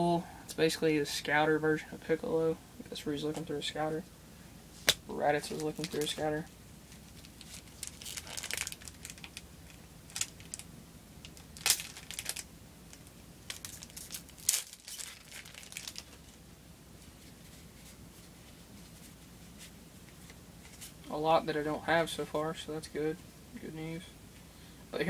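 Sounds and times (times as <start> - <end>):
foil wrapper crinkling and tearing: 5.5 - 6.2, 7.0 - 10.6, 11.3 - 16.4.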